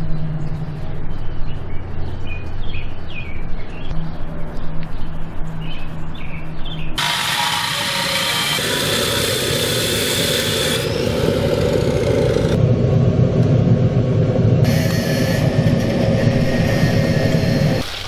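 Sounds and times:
furnace burner roaring: 7.0s - 17.8s.

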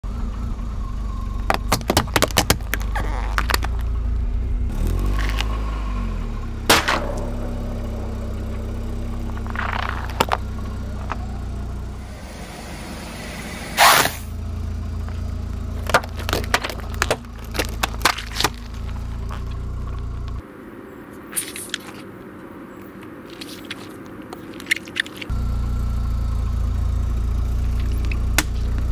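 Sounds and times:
car engine idling: 0.0s - 28.9s
tyre crushing plastic and cans: 1.5s - 3.8s, 8.6s - 11.2s, 15.7s - 20.3s.

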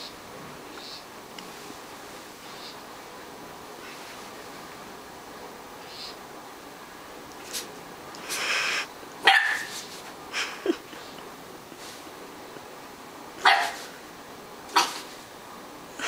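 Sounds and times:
puppy barking: 9.2s - 9.9s, 13.4s - 13.9s, 14.7s - 15.1s.

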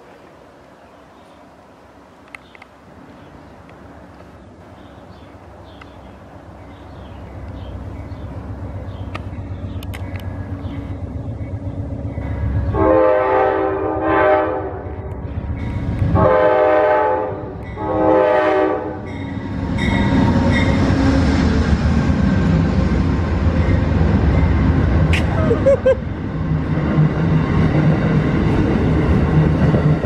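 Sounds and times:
train rumble and wheel clatter: 0.0s - 30.0s
train horn blasts: 12.7s - 15.2s, 16.1s - 19.2s.

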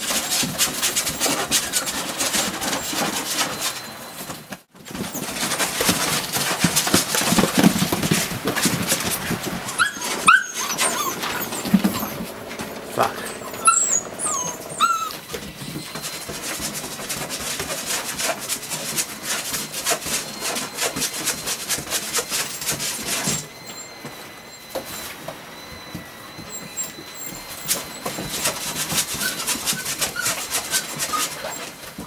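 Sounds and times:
puppies scratching at wooden board: 0.0s - 32.0s
puppies whimpering and yelping: 8.5s - 32.0s.

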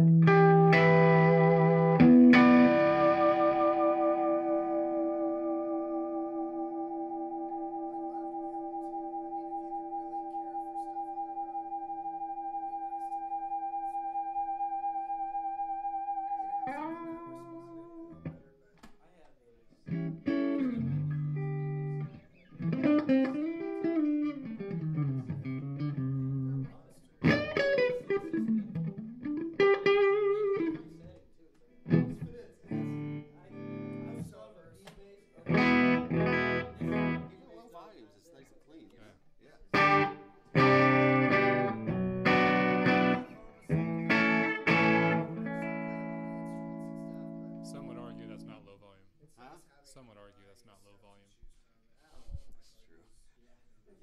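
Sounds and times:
electric guitar playing: 0.0s - 18.4s, 19.9s - 31.1s, 31.9s - 34.4s, 35.4s - 37.4s, 39.7s - 48.6s.

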